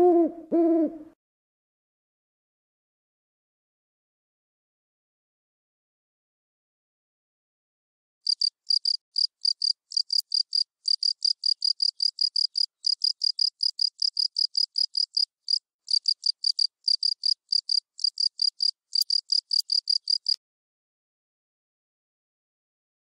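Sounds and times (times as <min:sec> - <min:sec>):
insect chirping: 0:08.3 - 0:20.4.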